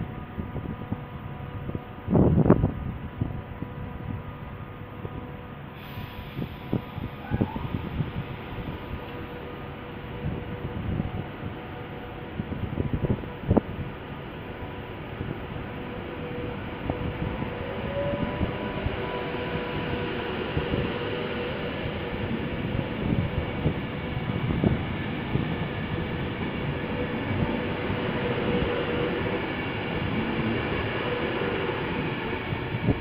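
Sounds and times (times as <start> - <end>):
train wheels rumbling on rail: 0.0 - 33.0.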